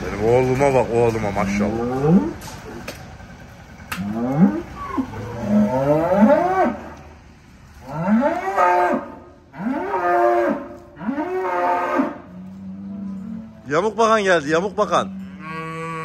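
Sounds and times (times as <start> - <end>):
cattle mooing: 1.3 - 2.5, 3.9 - 7.1, 7.8 - 16.0.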